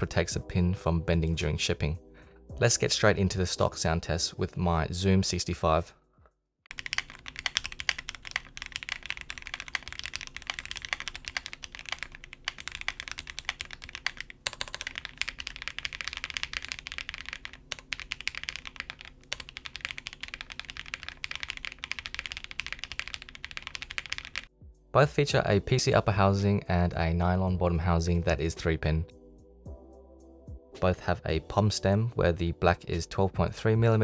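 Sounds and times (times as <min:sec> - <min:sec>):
mechanical keyboard typing: 0:06.7 - 0:24.5.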